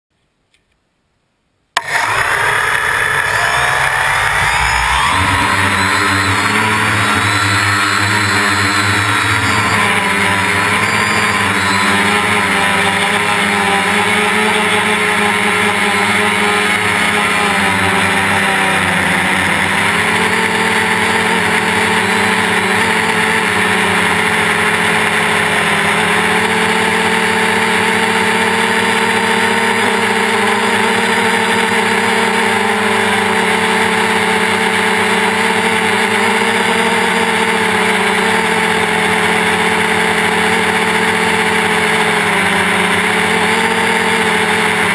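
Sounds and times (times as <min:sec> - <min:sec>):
propeller rushing hiss: 0:01.8 - 0:31.5
drone motors whining: 0:01.8 - 0:44.9.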